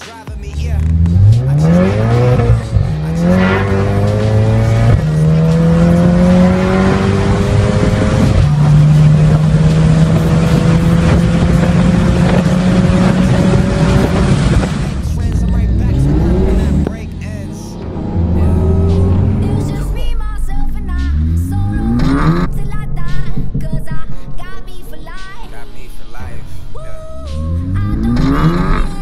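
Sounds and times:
car engine accelerating at full throttle: 0.6s - 23.8s, 27.3s - 29.0s.

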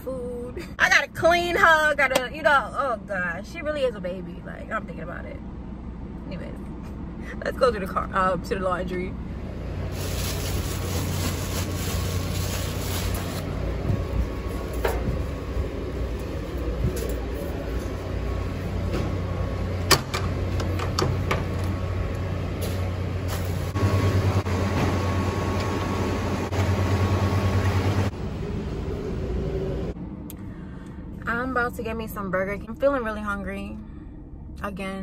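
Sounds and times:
hum of laundry machines: 0.0s - 35.0s.

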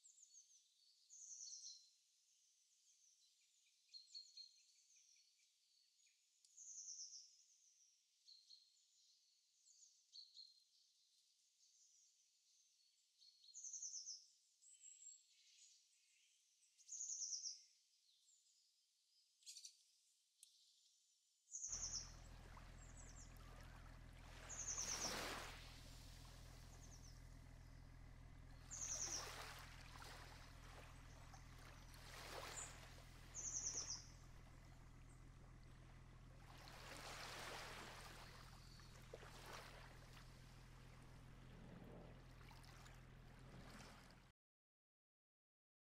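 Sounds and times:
birds chirping and trilling: 21.7s - 27.9s, 28.5s - 35.8s, 36.7s - 43.8s
low steady hum: 21.7s - 44.3s
stream-like rushing: 21.8s - 26.9s, 28.6s - 34.4s, 36.4s - 44.3s.

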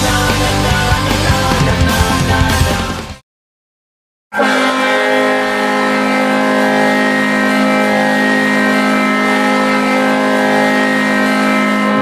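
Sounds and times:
arena goal horn blast: 4.3s - 12.0s.

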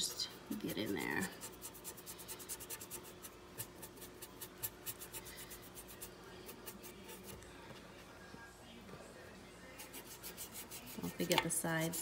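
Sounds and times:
brush bristles scratching: 0.0s - 7.4s, 9.8s - 12.0s.

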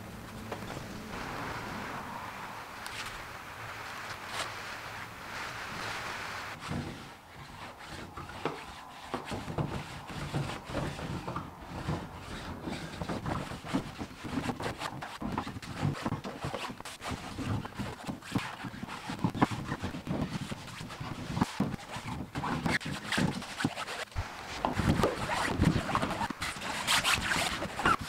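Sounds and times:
iron rubbing on fabric: 0.8s - 28.0s.

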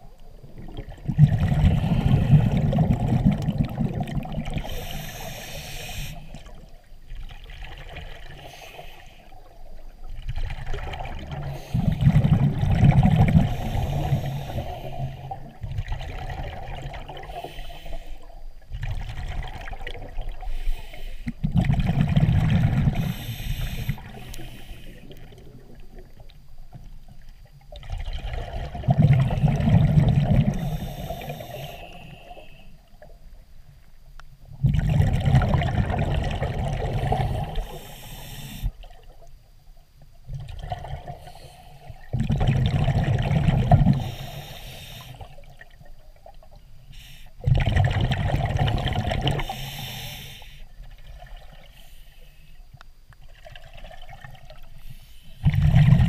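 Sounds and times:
bubbles exhaled underwater: 0.0s - 17.6s, 18.5s - 20.6s, 21.3s - 33.2s, 34.5s - 39.3s, 40.2s - 44.6s, 47.4s - 50.0s, 53.2s - 54.8s, 55.4s - 56.0s
diver breathing through regulator: 1.5s - 2.9s, 4.6s - 6.5s, 8.3s - 9.4s, 13.2s - 15.5s, 17.2s - 18.4s, 20.4s - 21.4s, 22.8s - 25.4s, 29.0s - 32.8s, 36.8s - 38.9s, 41.1s - 42.1s, 43.8s - 45.5s, 46.9s - 47.4s, 49.2s - 50.8s.

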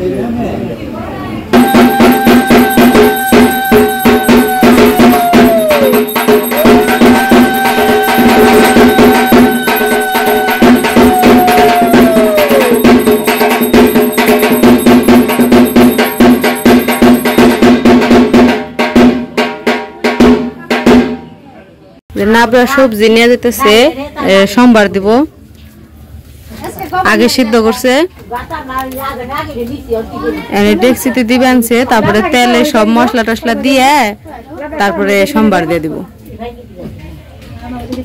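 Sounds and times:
clanging metal percussion: 1.5s - 21.2s
loud fast drumming: 1.5s - 21.2s
steady ringing tones: 1.6s - 18.4s.

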